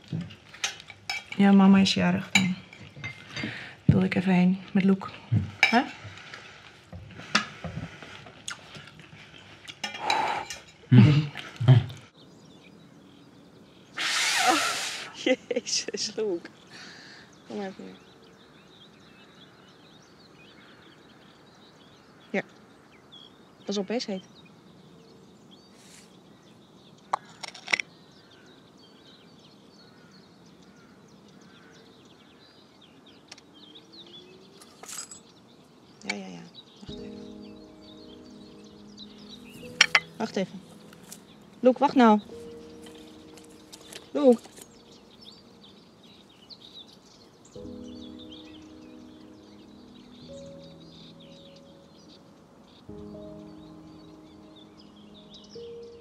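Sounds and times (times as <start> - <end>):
outdoor background hiss: 0.0 - 56.0
small birds chirping: 0.0 - 56.0
cutlery and dishes clinking: 0.5 - 1.5, 2.3 - 3.6, 9.7 - 10.9, 34.6 - 35.3, 39.7 - 40.1.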